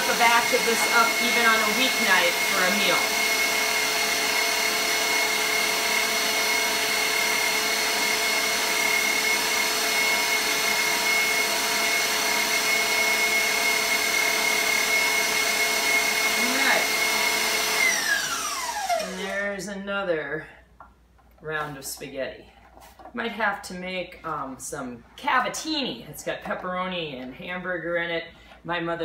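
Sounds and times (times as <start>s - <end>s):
mixer motor whining: 0.0s - 19.5s.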